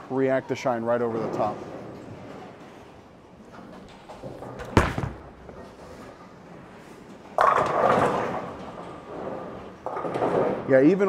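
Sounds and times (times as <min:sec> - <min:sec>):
bowling pins crashing: 0:04.3 - 0:05.5
bowling ball thudding on lane: 0:04.6 - 0:05.4.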